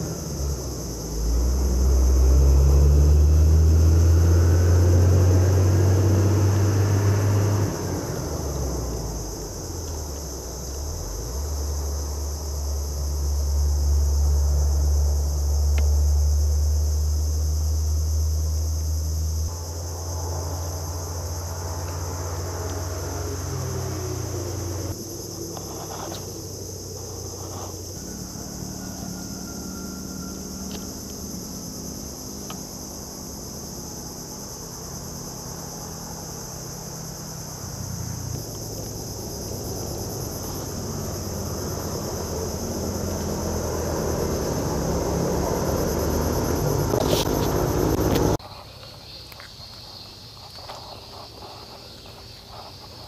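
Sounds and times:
insects buzzing: 0.0 - 53.0.

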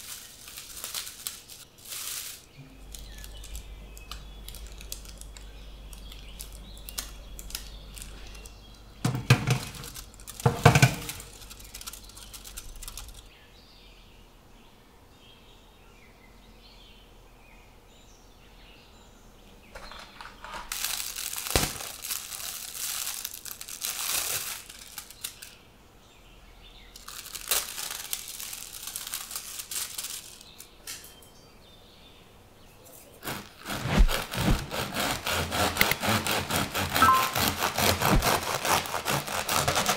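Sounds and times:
plastic bags crinkling: 0.0 - 13.3, 19.8 - 25.6, 26.8 - 31.1, 36.7 - 39.9
bread knife sawing crust: 33.2 - 39.9.

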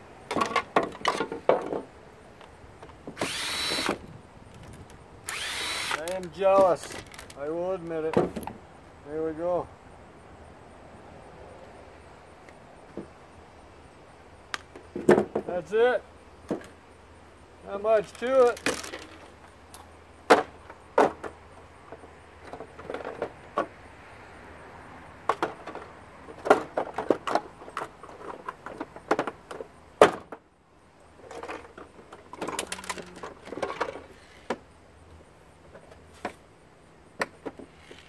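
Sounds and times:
plastic parts knocking and clicking: 18.1 - 19.3.

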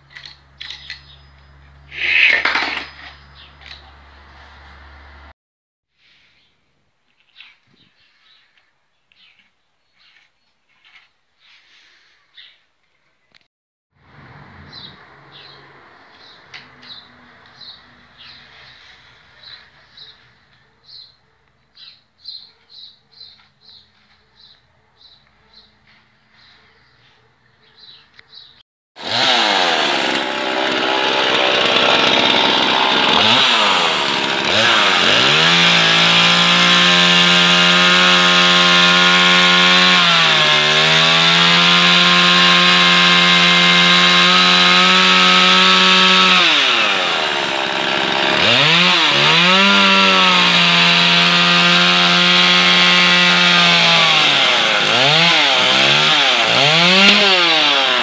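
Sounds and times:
chainsaw engine drilling into steel: 29.0 - 58.0.

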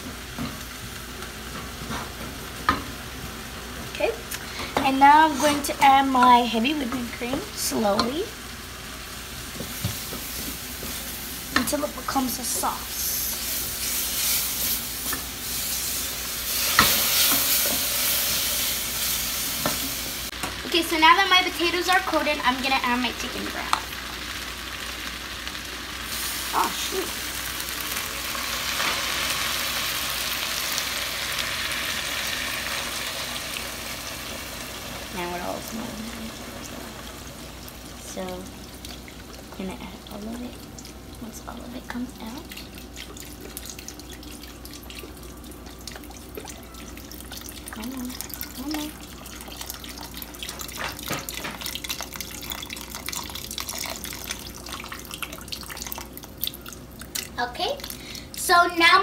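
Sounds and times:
potatoes sizzling in a pot: 0.0 - 59.0
broth pouring: 42.0 - 58.4.

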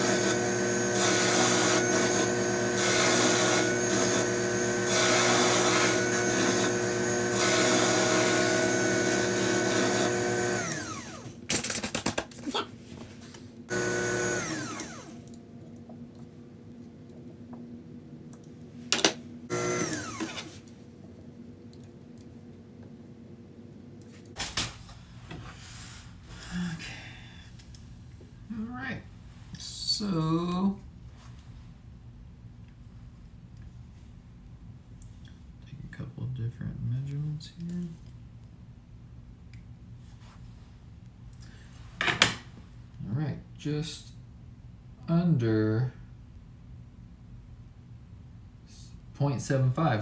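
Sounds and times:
cutting tool cutting wood: 0.0 - 11.3, 13.7 - 15.2, 19.5 - 20.5
lathe motor running: 0.0 - 11.3, 13.7 - 15.2, 19.5 - 20.4.

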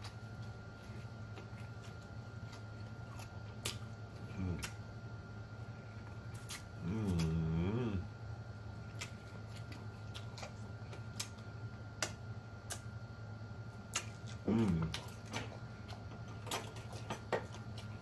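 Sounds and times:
person humming mmm: 4.2 - 4.8, 6.8 - 8.1, 14.4 - 15.1.

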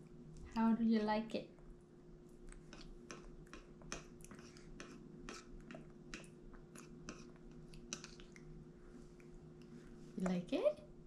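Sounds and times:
baby chewing wet smacks: 2.4 - 10.4.

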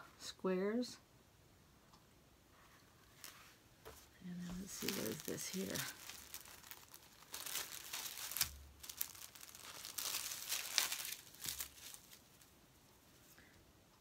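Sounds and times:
packaging crinkling: 4.4 - 13.4.

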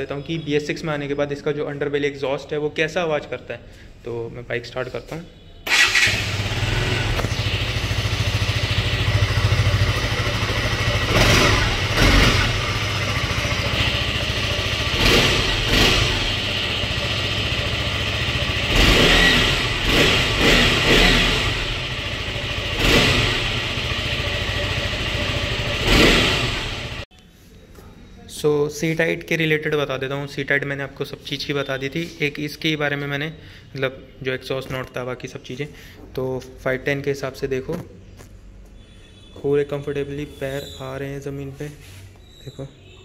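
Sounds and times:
motorcycle engine revving: 5.7 - 27.1.

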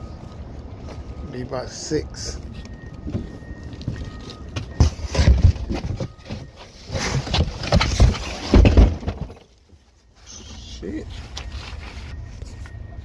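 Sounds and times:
rustling: 2.4 - 13.0
knocks and heavy thumps: 3.0 - 9.5.

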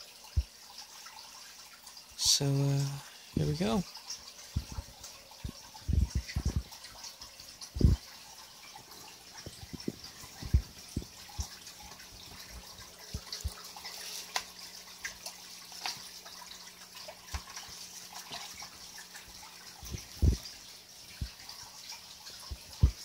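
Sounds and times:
faint steady hum: 0.0 - 23.0
water drips and splashes: 0.0 - 23.0
low thumps: 9.5 - 11.2.

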